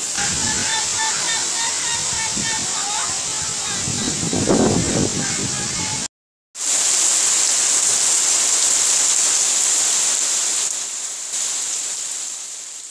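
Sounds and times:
heavy rain pouring: 0.0 - 12.9.

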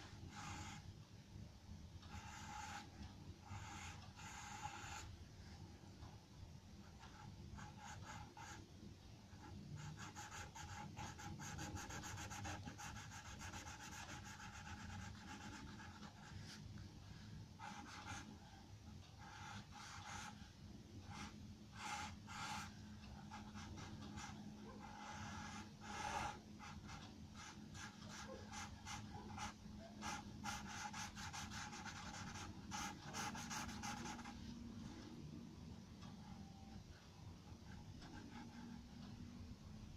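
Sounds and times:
charcoal pencil scratching on paper: 0.3 - 0.8, 2.1 - 5.1, 9.4 - 16.6, 17.6 - 18.4, 21.1 - 34.4.

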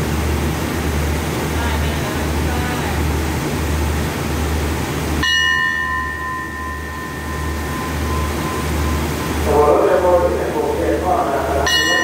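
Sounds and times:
train low hum: 0.0 - 12.0
bell ringing: 5.2 - 9.6, 11.6 - 12.0.

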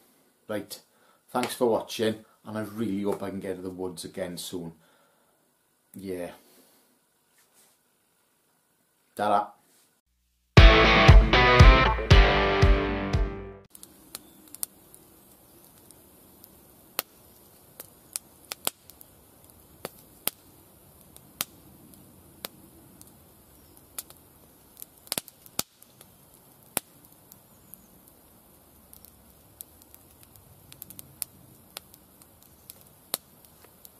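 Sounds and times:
faint steady hiss: 0.0 - 10.6, 13.7 - 33.9
campfire crackling and popping: 13.7 - 33.9.

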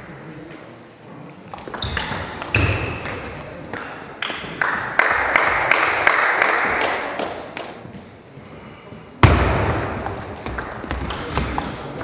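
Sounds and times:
small crowd clapping: 4.2 - 7.8.

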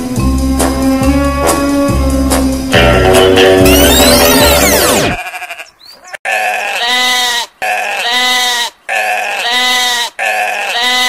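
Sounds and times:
sheep bleating: 3.7 - 11.0.

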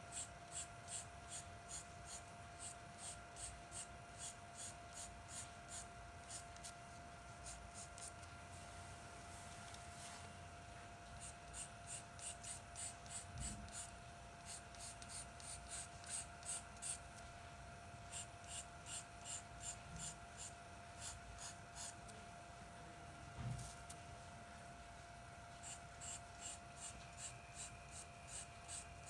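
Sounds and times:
faint steady whine: 0.0 - 29.0
charcoal pencil scratching on paper: 0.1 - 6.4, 18.1 - 22.0, 25.6 - 28.9.

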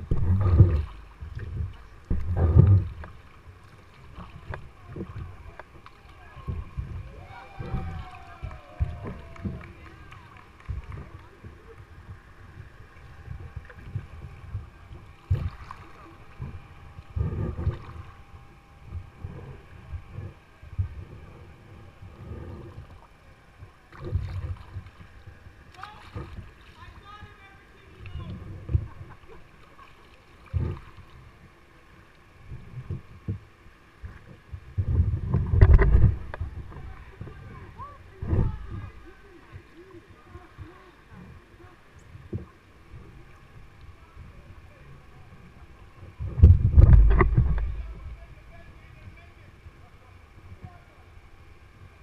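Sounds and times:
low thuds: 0.0 - 3.2, 46.2 - 48.6
water splashing against kayak hull: 0.0 - 52.0
knocks and splashy clicks: 46.4 - 48.2.

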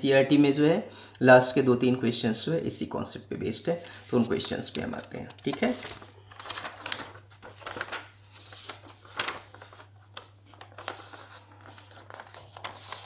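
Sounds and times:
notebook pages rustling: 3.7 - 13.0.

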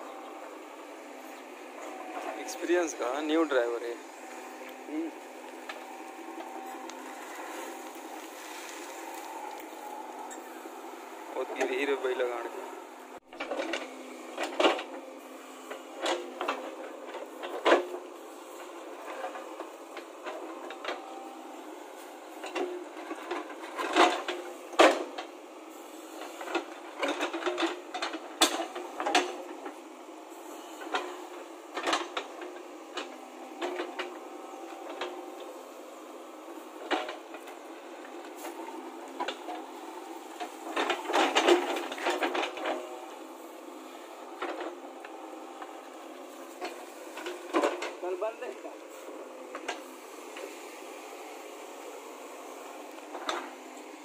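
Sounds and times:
diesel engine running: 0.0 - 53.9
bucket scraping stony soil: 1.9 - 10.5.

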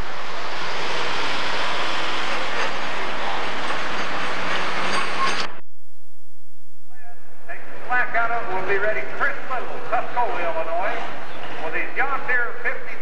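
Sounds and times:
diesel tractor engine running: 0.0 - 5.6.

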